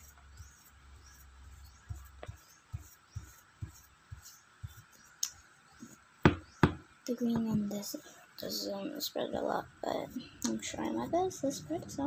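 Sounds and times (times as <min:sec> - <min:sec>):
paintbrush thumping on paper: 0:05.8 - 0:07.7.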